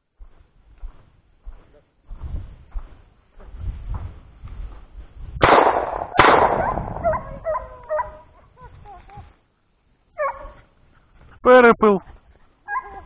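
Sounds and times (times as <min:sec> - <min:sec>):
shotgun shots: 0:05.4 - 0:07.2
dog whining in yelps: 0:06.6 - 0:09.1, 0:10.2 - 0:10.7, 0:12.6 - 0:13.0.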